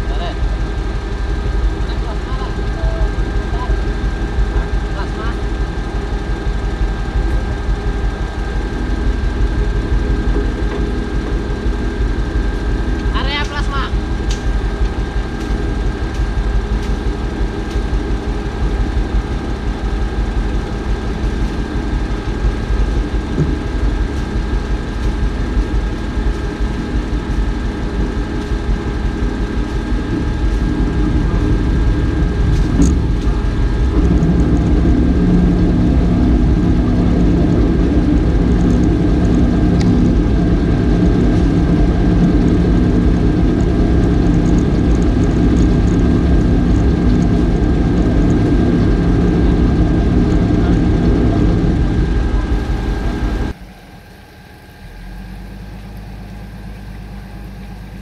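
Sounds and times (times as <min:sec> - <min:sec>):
off-road vehicle engine revving: 0:00.0 - 0:53.6.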